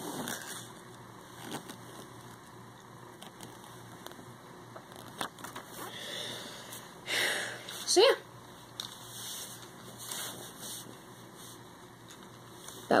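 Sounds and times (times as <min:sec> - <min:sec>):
low steady hum: 0:00.0 - 0:13.0
paper rustling and clicks: 0:04.8 - 0:05.8.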